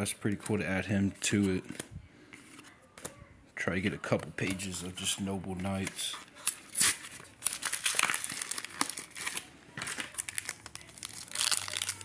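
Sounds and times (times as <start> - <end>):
plastic blister pack crinkling: 5.7 - 12.0.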